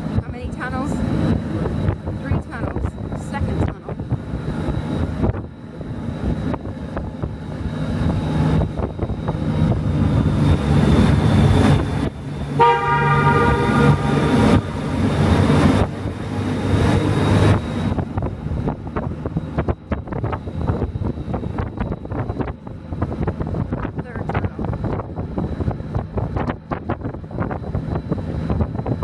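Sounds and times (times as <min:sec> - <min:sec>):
motorcycle engine running: 0:00.0 - 0:29.0
wind noise on microphone: 0:00.0 - 0:29.0
horn sounding: 0:12.5 - 0:15.6.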